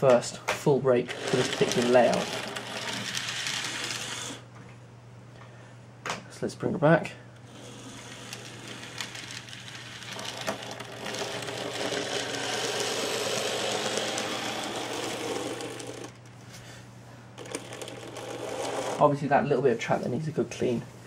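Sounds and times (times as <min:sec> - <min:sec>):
steady low hum: 0:00.0 - 0:21.0
model train motor whirring: 0:01.1 - 0:04.4, 0:07.4 - 0:16.2, 0:17.4 - 0:19.0.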